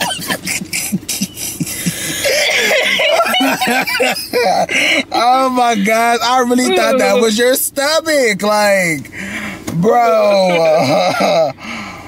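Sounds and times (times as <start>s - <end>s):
people laughing: 0.0s - 7.4s, 10.3s - 11.6s.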